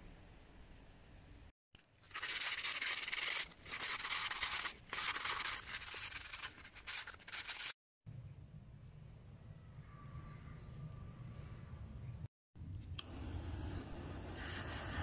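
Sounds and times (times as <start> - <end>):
sandpaper rubbing on wood: 2.1 - 7.7.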